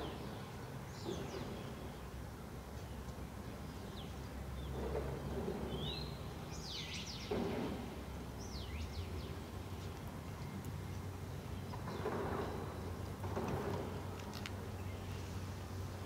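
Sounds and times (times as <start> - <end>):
birds chirping: 0.0 - 15.6
distant earthmoving machinery rumble: 4.5 - 15.2.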